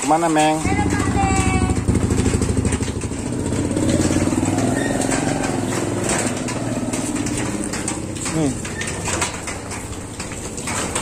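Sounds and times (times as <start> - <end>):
motorcycle engine running: 0.6 - 11.0.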